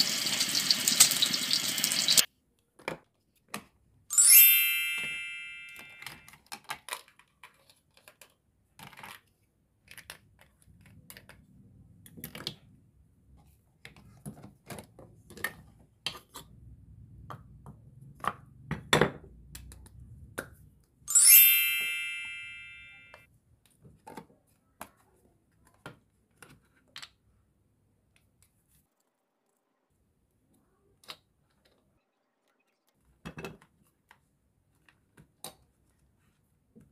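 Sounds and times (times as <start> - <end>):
bell-like ding: 4.1 - 6.2, 21.1 - 23.2
toy kitchen pieces clicking: 5.8 - 12.7.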